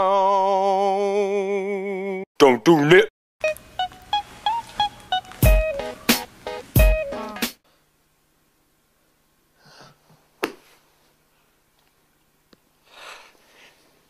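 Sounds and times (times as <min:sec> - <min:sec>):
person sniffing softly: 0:12.8 - 0:14.0.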